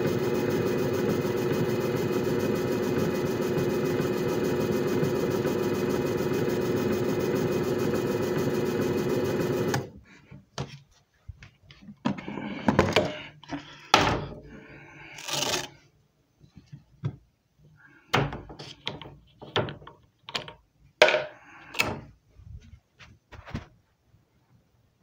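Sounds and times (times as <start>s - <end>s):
machine motor humming: 0.0s - 9.9s.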